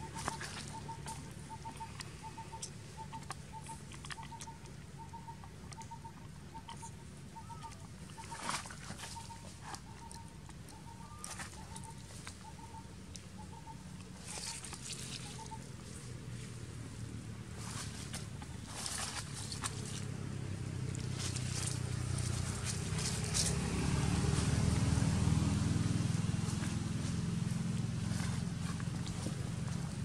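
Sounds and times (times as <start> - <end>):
rustling in dry leaves: 14.2 - 30.0.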